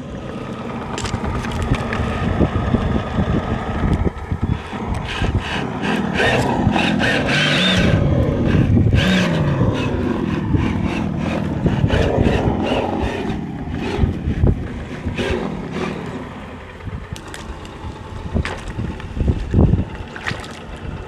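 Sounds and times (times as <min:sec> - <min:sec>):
twigs crackling: 0:00.9 - 0:02.1, 0:17.1 - 0:20.8.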